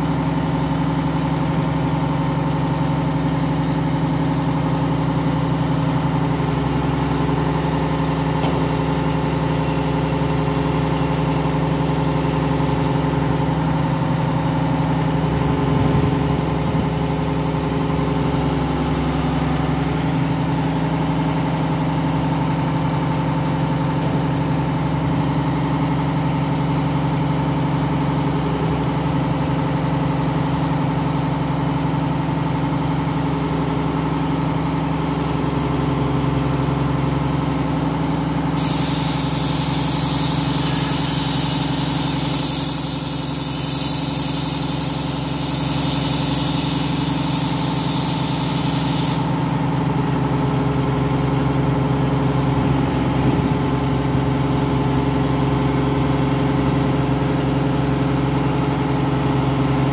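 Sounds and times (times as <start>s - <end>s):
diesel engine running: 0.0s - 59.9s
loud hiss: 6.4s - 20.5s, 38.6s - 49.6s.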